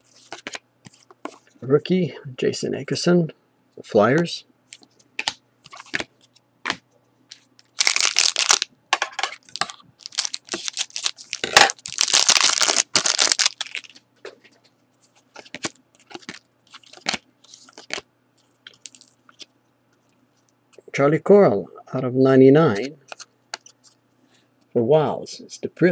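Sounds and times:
foil wrapper crinkling and tearing: 7.6 - 8.7, 9.4 - 14.0
trading cards clicking and rustling: 15.3 - 19.5.

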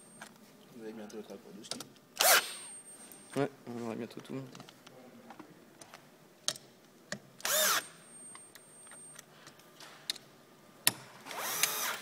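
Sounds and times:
cordless drill driving screws: 2.2 - 2.6, 7.4 - 7.9, 11.3 - 12.0.

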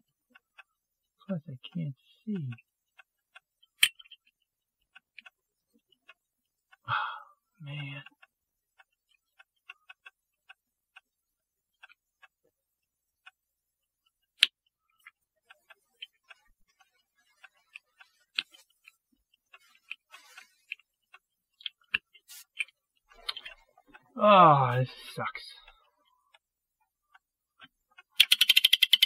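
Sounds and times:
small metal clicks: 27.1 - 29.0.

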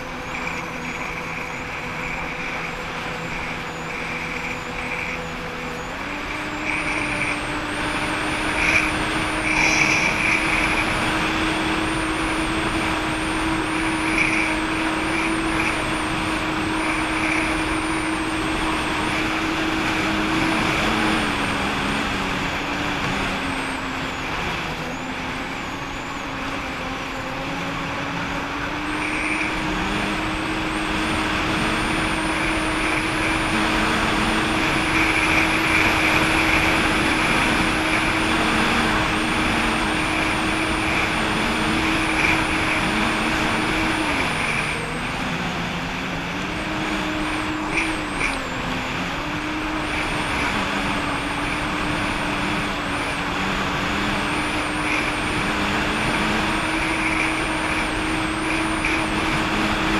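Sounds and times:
jet ski engine running: 0.0 - 59.9.

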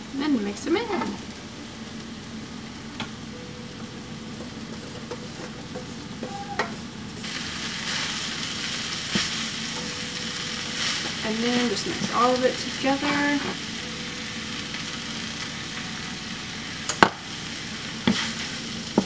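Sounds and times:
meat sizzling in a frying pan: 4.5 - 19.0.

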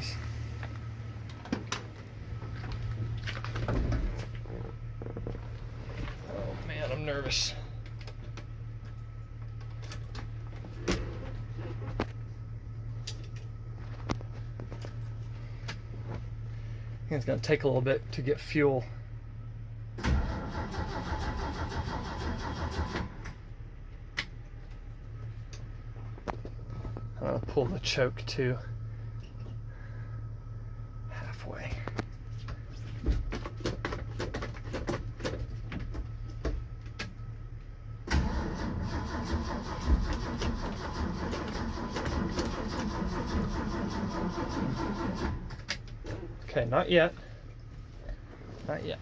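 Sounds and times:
low steady hum: 0.0 - 49.0
engine cranking on starter: 20.0 - 23.4, 38.0 - 45.7.

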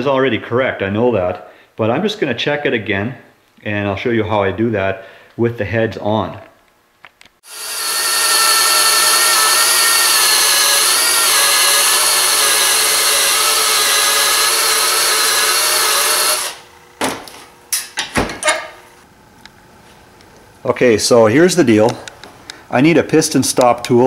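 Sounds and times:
drill motor whine: 7.4 - 16.9.

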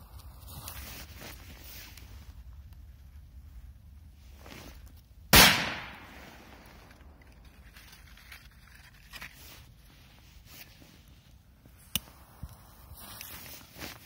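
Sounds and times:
firecracker bang: 5.3 - 6.8.

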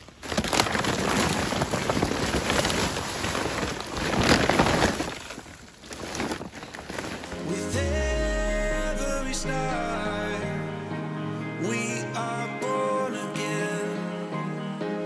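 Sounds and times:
footsteps crunching through snow: 0.0 - 10.6.

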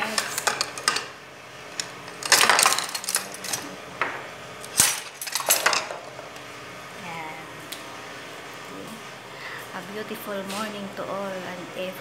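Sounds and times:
dishes and cutlery clattering: 1.8 - 3.7, 4.8 - 6.0.

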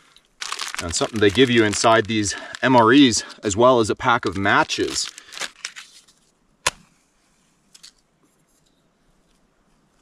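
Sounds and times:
handling rustle: 0.4 - 6.4.

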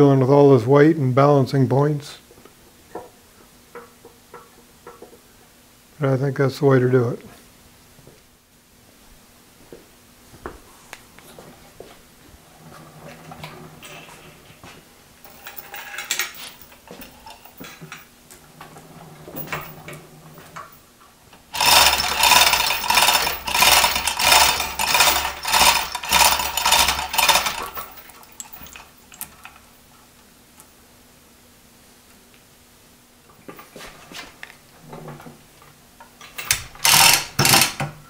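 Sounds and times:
metal chain rattling: 15.3 - 18.1, 21.5 - 29.7.

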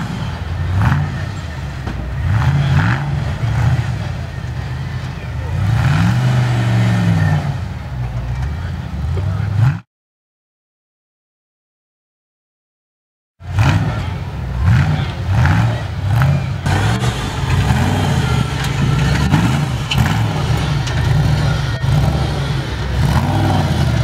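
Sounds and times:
off-road engine revving: 0.0 - 9.9, 13.4 - 24.0
knocks and clatters: 16.6 - 21.5.

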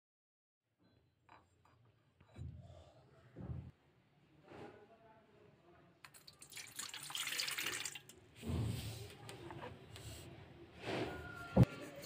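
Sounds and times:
milk splashing into metal bowl: 6.0 - 8.2.

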